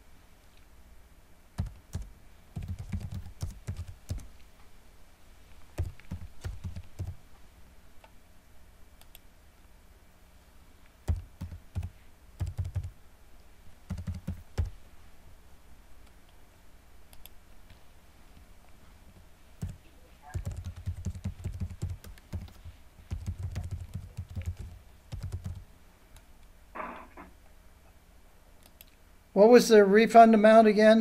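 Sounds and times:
typing on computer keyboard: 0:01.6 - 0:04.3, 0:05.8 - 0:07.2, 0:11.1 - 0:12.9, 0:13.9 - 0:14.7, 0:19.6 - 0:25.6.

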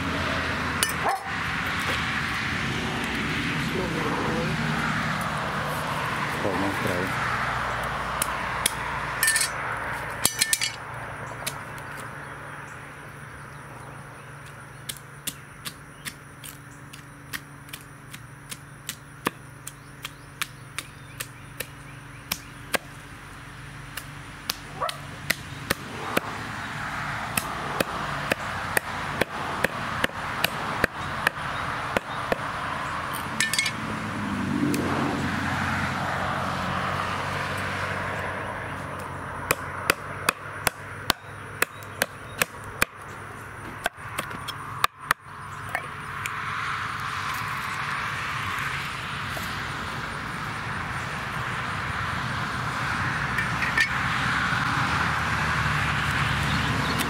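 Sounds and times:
rushing background noise: 0:00.0 - 0:18.2
cleaver chopping on wooden board: 0:14.8 - 0:23.0, 0:23.9 - 0:26.4, 0:27.3 - 0:32.5, 0:38.9 - 0:43.1.

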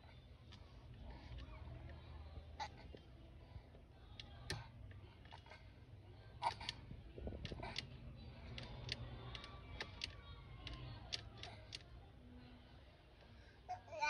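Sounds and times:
faint clicks and ticks: 0:02.8 - 0:05.7, 0:06.4 - 0:12.0.

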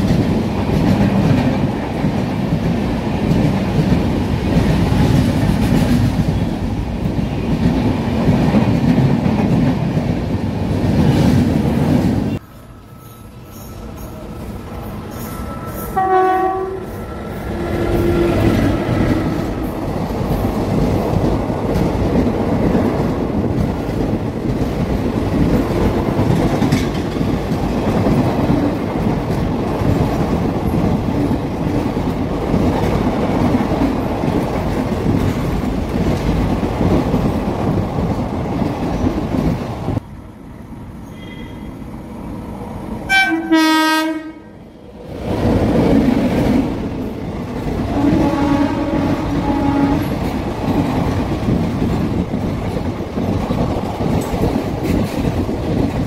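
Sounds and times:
train wheels rushing on rails: 0:00.0 - 0:56.0
train horn: 0:15.2 - 0:19.4, 0:41.1 - 0:41.8, 0:43.1 - 0:44.6, 0:47.9 - 0:50.2.

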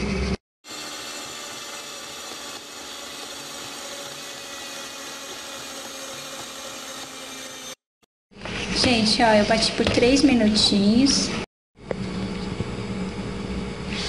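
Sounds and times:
electric mixer running: 0:00.6 - 0:07.9.

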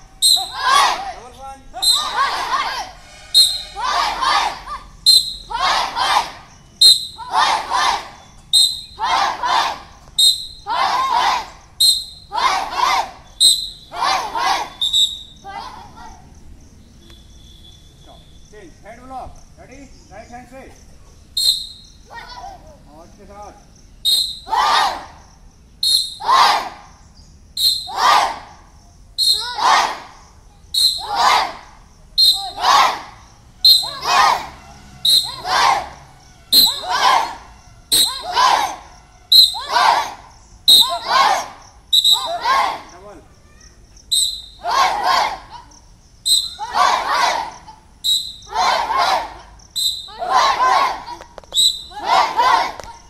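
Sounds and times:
children shouting in unison: 0:00.0 - 0:16.4, 0:22.0 - 0:22.8, 0:24.1 - 0:25.3, 0:25.9 - 0:27.0, 0:27.6 - 0:53.0
short high whistle blasts: 0:00.2 - 0:01.0, 0:01.8 - 0:05.6, 0:06.5 - 0:07.3, 0:08.2 - 0:09.2, 0:10.1 - 0:10.8, 0:11.8 - 0:12.3, 0:13.3 - 0:15.4, 0:21.4 - 0:22.0, 0:24.0 - 0:24.6, 0:25.8 - 0:26.6, 0:27.6 - 0:28.2, 0:29.2 - 0:29.7, 0:30.7 - 0:31.4, 0:32.2 - 0:32.8, 0:33.6 - 0:35.7, 0:36.5 - 0:40.0, 0:40.7 - 0:41.2, 0:41.9 - 0:42.7, 0:44.1 - 0:44.8, 0:46.2 - 0:46.9, 0:48.0 - 0:48.8, 0:49.7 - 0:50.6, 0:51.5 - 0:52.2.

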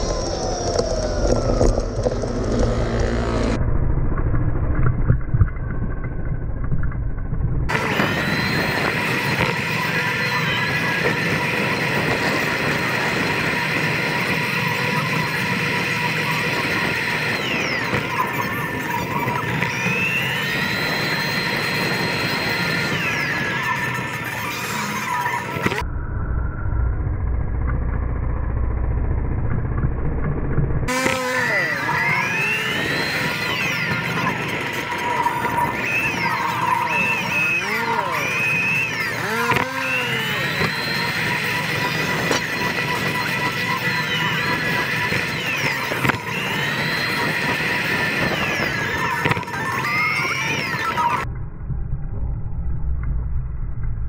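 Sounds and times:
motor scooter engine running: 0:00.0 - 0:03.6, 0:07.7 - 0:25.8, 0:27.2 - 0:51.2
wind rumble: 0:00.0 - 0:24.4
street traffic: 0:00.0 - 0:51.2.

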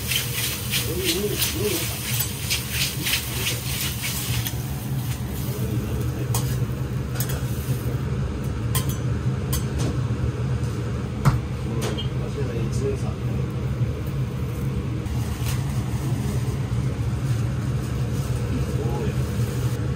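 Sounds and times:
metal spatulas scraping on griddle: 0:00.0 - 0:04.5
steady low hum: 0:00.0 - 0:19.9.

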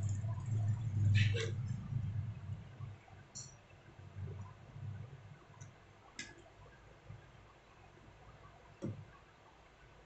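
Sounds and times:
low handling rumble: 0:00.0 - 0:03.4.

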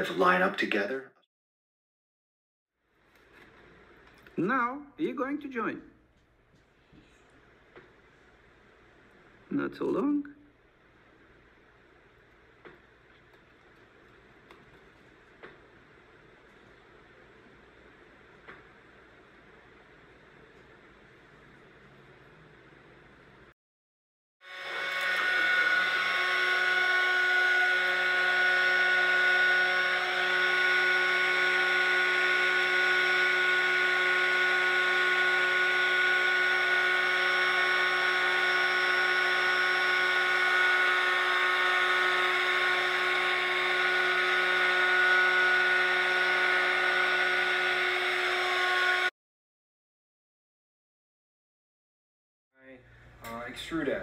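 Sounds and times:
heat gun fan whine: 0:24.5 - 0:49.1.

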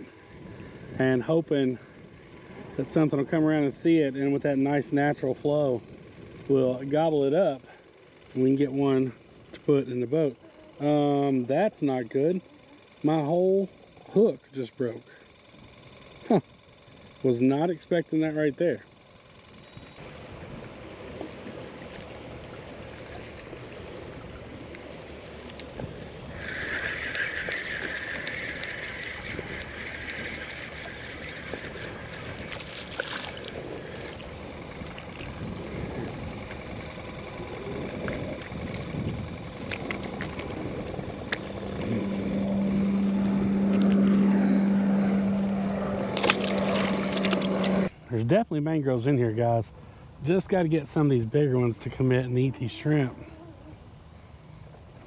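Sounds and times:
low motor hum: 0:00.0 - 0:55.0
water noise around boat: 0:00.0 - 0:55.0
wind: 0:00.0 - 0:55.0
spinning reel cranking: 0:26.2 - 0:34.8, 0:35.4 - 0:47.9.

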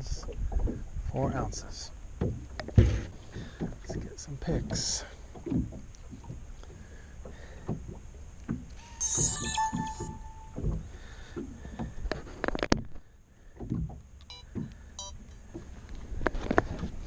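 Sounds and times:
wind rumble on microphone: 0:00.0 - 0:04.9
waves slapping against hull: 0:00.0 - 0:17.0.

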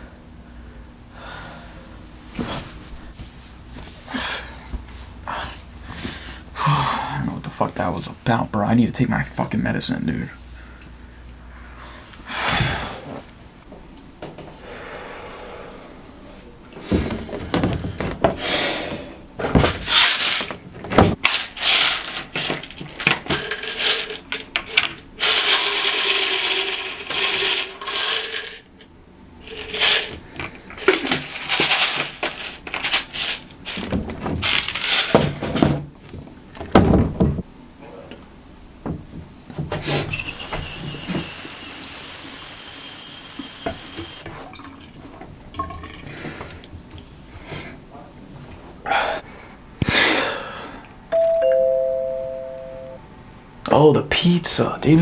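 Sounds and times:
pills rattling: 0:21.2 - 0:28.7, 0:29.4 - 0:35.2
pill bottle opening: 0:40.1 - 0:41.6.

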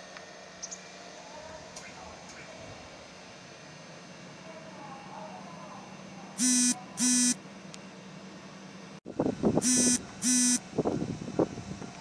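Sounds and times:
electronic buzzer beeps: 0:06.4 - 0:07.4, 0:09.6 - 0:10.6.

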